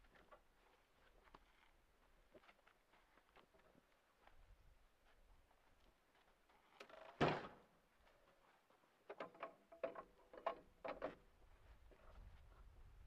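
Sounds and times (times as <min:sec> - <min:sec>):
log knocks and clanks: 0:09.1 - 0:11.2.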